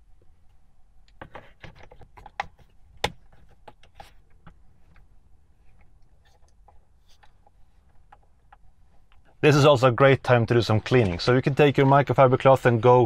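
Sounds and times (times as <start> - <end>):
plastic clicks and knocks: 1.1 - 5.1.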